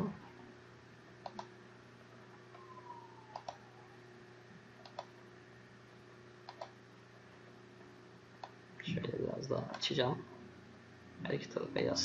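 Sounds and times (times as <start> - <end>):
faint steady hum: 0.0 - 12.0
computer mouse clicks: 1.2 - 1.5, 3.3 - 3.6, 4.8 - 5.2, 6.5 - 6.8.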